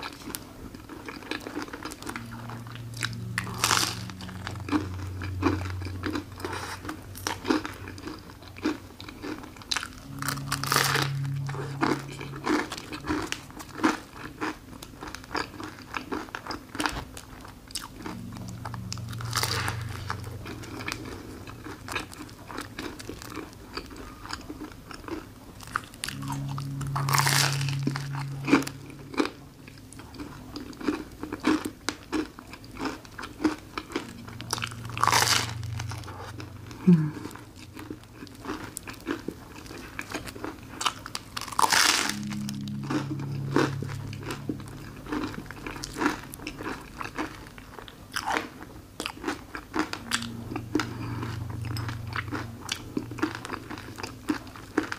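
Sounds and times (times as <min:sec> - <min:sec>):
crunching and chewing waffle: 0:00.0 - 0:54.9.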